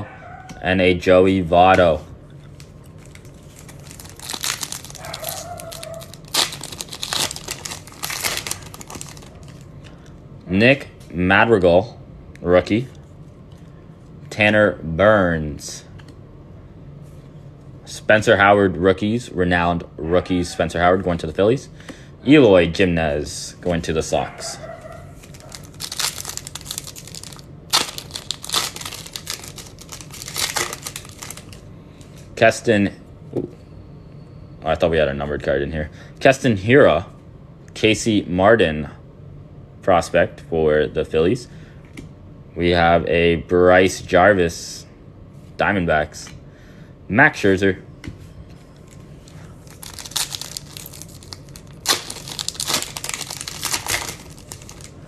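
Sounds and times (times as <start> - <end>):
foil wrapper crinkling and tearing: 2.5 - 9.7, 25.1 - 32.3, 48.8 - 55.0.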